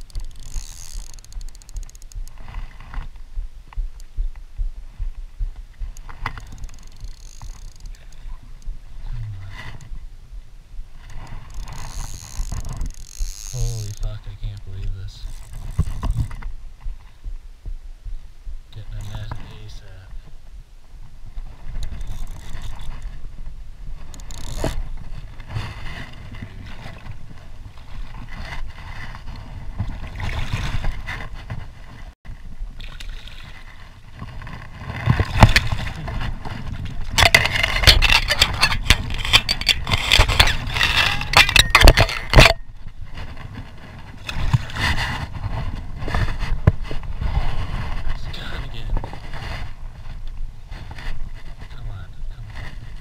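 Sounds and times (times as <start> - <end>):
river water splashing: 24.1 - 37.8.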